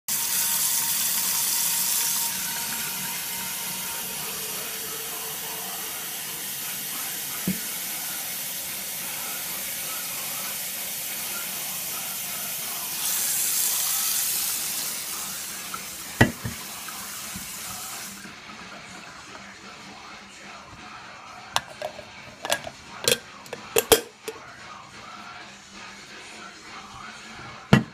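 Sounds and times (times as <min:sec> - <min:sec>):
faucet water running into sink: 0:00.1 - 0:19.4, 0:21.6 - 0:24.3
water filling glass carafe: 0:00.1 - 0:19.4, 0:21.6 - 0:24.4.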